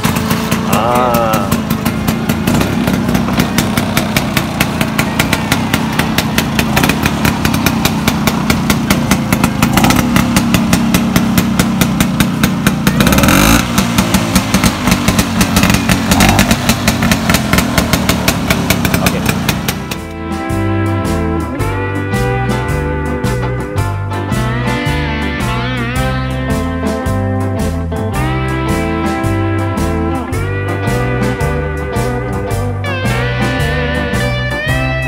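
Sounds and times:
scooter engine idling: 0.0s - 20.2s.

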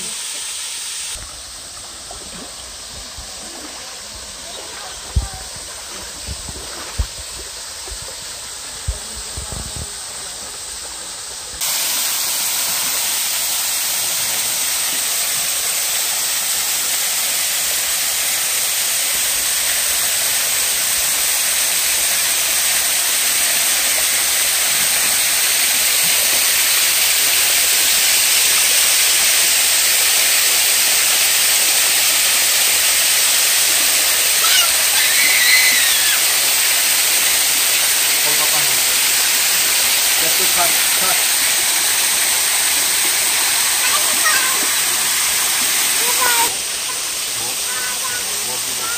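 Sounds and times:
creek flowing: 0.0s - 48.9s
waterfall rushing: 0.0s - 48.9s
water splashes and knocks: 1.2s - 10.0s.

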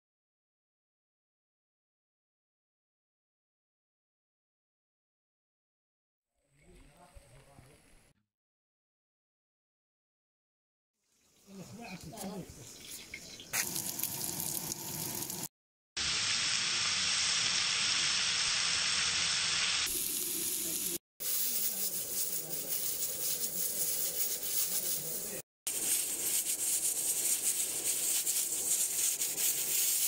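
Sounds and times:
fat frying in a pot: 11.0s - 30.0s
pressure cooker venting steam: 13.4s - 30.0s.

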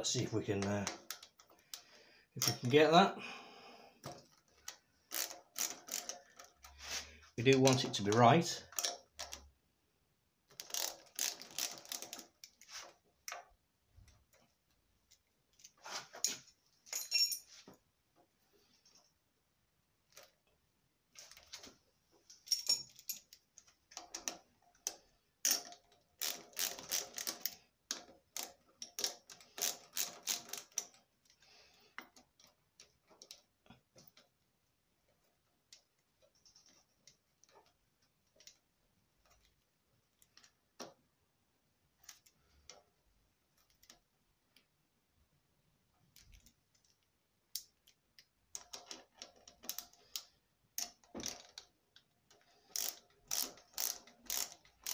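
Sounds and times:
bolts and hand tools clicking: 0.5s - 2.7s, 4.0s - 6.8s, 7.5s - 9.5s, 10.5s - 13.5s, 22.2s - 34.4s, 35.0s - 41.0s, 46.1s - 54.9s.

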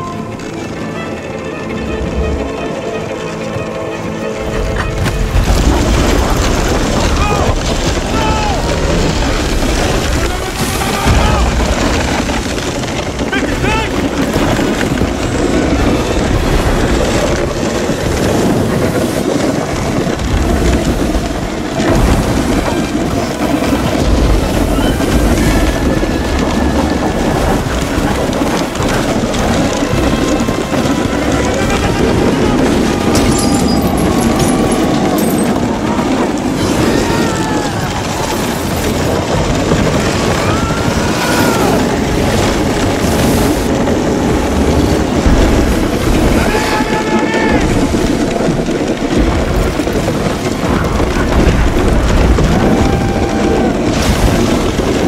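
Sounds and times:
avalanche rumbling: 0.0s - 55.0s.

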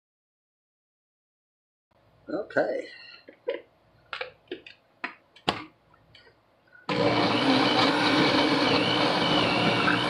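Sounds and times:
blender running at full speed: 6.9s - 10.0s.

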